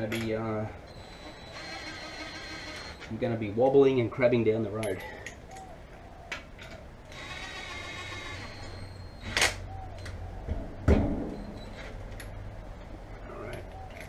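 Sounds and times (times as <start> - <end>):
cordless drill whirring: 1.5 - 3.0, 7.1 - 9.3.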